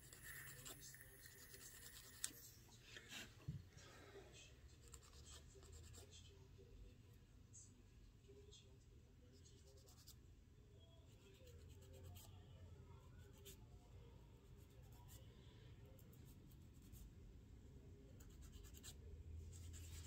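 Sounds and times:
nail file scratching fingernails: 0.0s - 2.4s.

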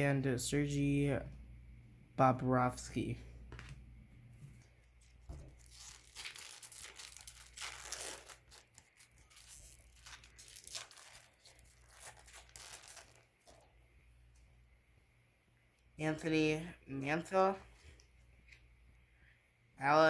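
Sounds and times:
wrapper ripping and crinkling: 5.0s - 13.7s.

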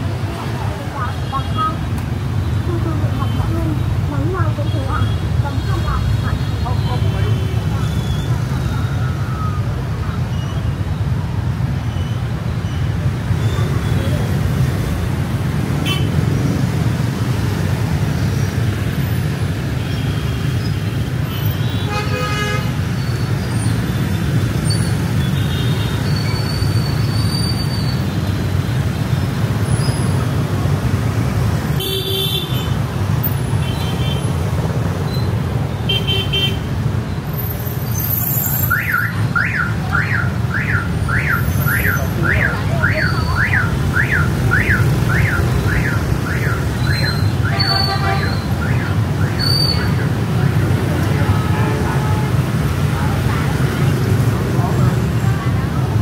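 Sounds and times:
city traffic rumble: 0.0s - 56.0s
vehicle alarm whooping: 38.6s - 50.1s.

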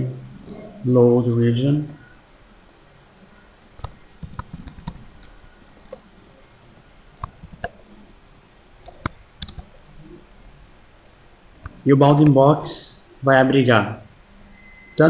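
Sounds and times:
computer keyboard typing: 3.5s - 8.0s, 8.8s - 10.1s, 11.6s - 12.3s.

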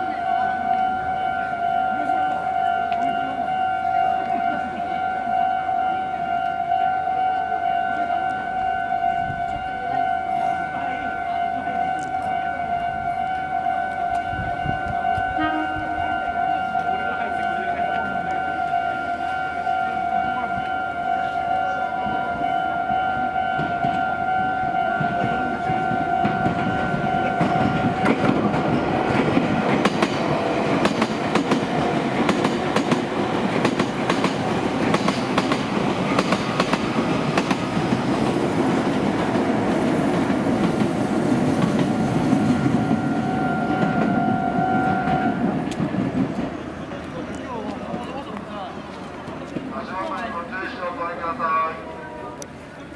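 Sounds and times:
level-crossing warning bell: 0.0s - 45.7s
train wheels clattering on rails: 22.9s - 24.1s, 24.9s - 50.3s.

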